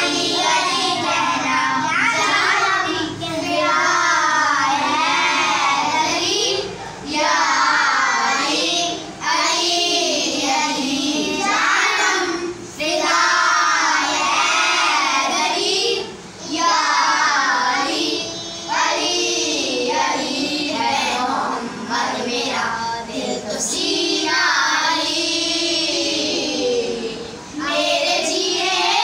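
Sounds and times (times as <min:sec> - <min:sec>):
children singing devotional song: 0:00.0 - 0:29.0.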